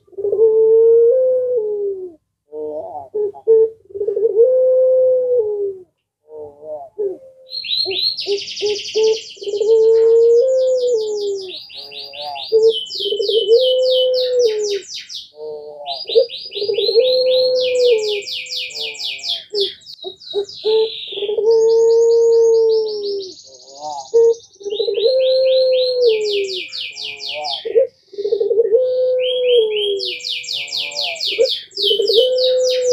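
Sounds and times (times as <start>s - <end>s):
dove cooing: 0.0s - 32.9s
small bird trilling chirps: 7.5s - 28.5s, 29.3s - 32.9s.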